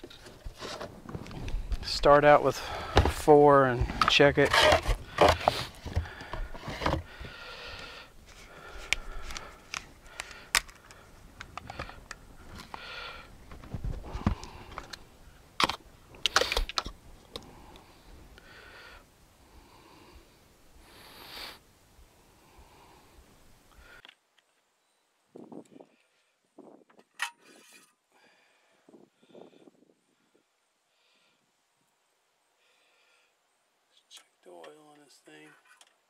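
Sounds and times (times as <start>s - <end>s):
plastic bottle being handled: 2.8s - 7.4s.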